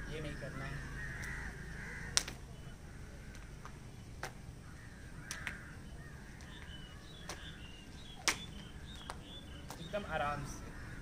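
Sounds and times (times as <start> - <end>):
crows cawing: 0.0 - 3.8, 4.6 - 7.8, 10.3 - 11.0
skipping rope slapping ground: 2.1 - 2.4, 8.2 - 9.8.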